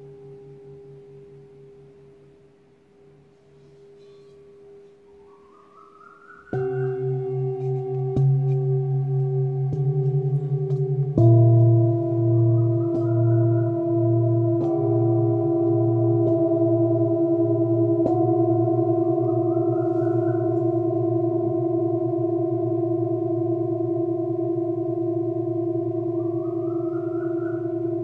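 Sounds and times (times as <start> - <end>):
bowls ringing with pulsing beat: 6.4 - 28.0
singing bowls struck with mallets: 6.4 - 28.0.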